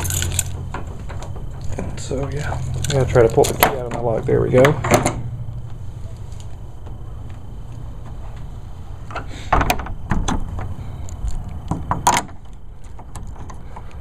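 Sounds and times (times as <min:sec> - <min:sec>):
shed doors knocking and rattling: 0:00.0 - 0:02.3, 0:03.6 - 0:05.2, 0:09.1 - 0:10.7, 0:11.6 - 0:13.8.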